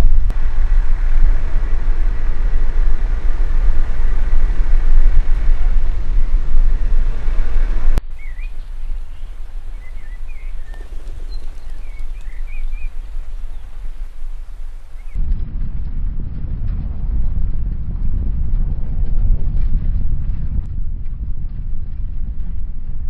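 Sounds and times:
loud low-pitched outdoor noise: 0:00.0 - 0:23.0
steady rush: 0:00.0 - 0:23.0
small birds chirping: 0:02.2 - 0:15.2.

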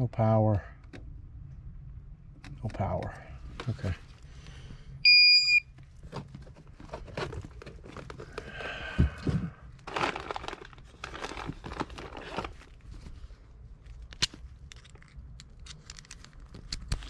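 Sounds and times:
rustling and crinkling handling: 0:05.7 - 0:17.0.

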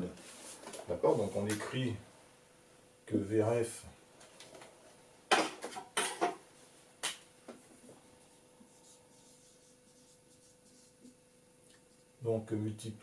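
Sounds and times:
faint steady hum: 0:00.0 - 0:13.0
whiteboard eraser rubbing: 0:08.7 - 0:11.2.

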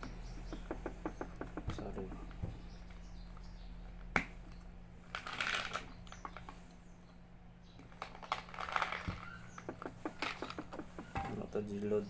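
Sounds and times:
capsules rattling in bottle: 0:05.0 - 0:06.6, 0:07.8 - 0:11.1.

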